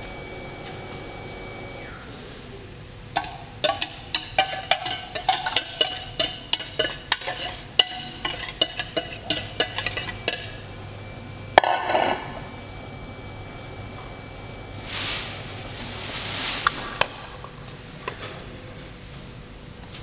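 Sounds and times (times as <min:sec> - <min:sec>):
whisk clinking against bowls: 0:03.1 - 0:10.6.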